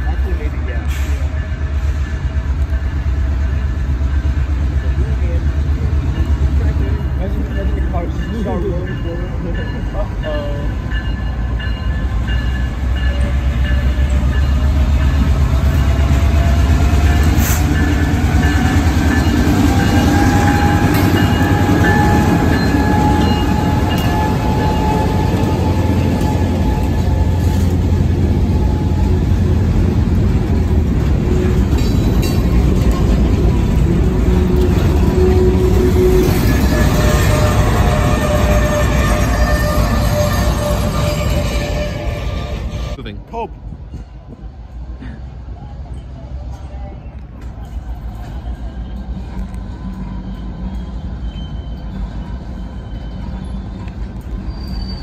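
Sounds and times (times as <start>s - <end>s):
diesel locomotive rumbling: 0.0s - 55.0s
freight car wheel squeal: 48.4s - 55.0s.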